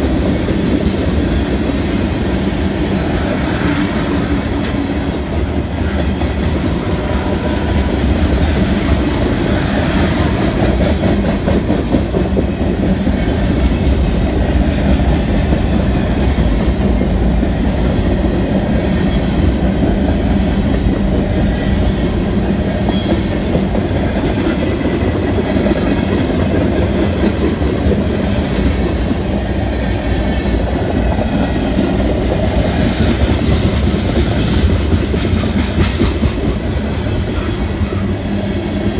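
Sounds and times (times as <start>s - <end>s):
steel wheels rumbling on rails: 0.0s - 38.9s.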